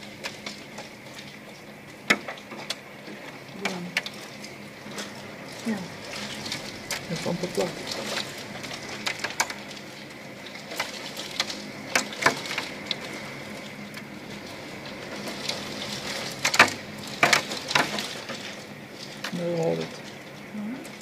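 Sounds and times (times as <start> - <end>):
driving rain hissing: 0.0 - 21.0
sharp knocks and cracks: 10.7 - 13.1, 15.2 - 20.1.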